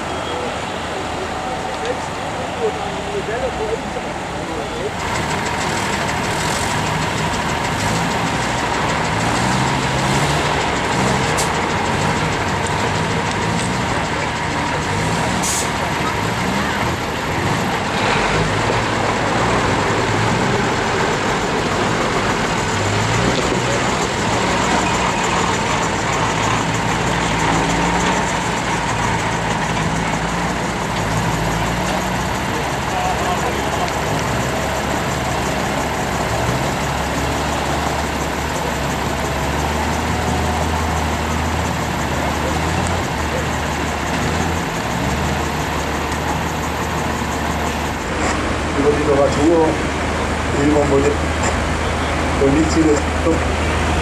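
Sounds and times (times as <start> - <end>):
diesel engine labouring: 0.0 - 54.0.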